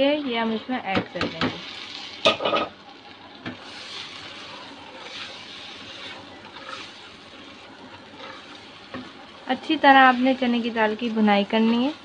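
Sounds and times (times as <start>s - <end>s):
lentils sizzling in hot oil: 0.0s - 12.0s
spatula stirring in a pot: 0.0s - 12.0s.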